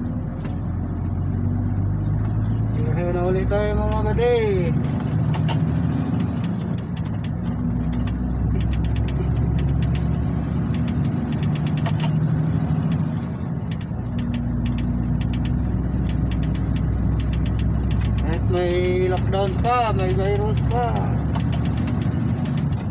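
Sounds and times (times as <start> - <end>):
road noise: 0.0 - 22.9
truck engine drone: 0.0 - 22.9
light clicks and rattles: 2.0 - 22.9.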